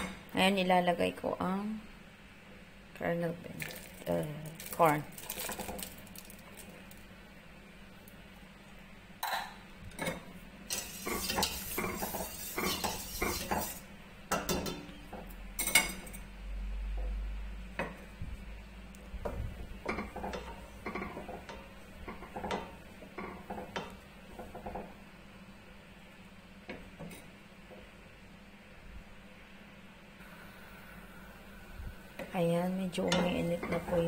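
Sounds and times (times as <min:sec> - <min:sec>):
wooden spatula scraping metal pot: 0:10.7 - 0:13.9.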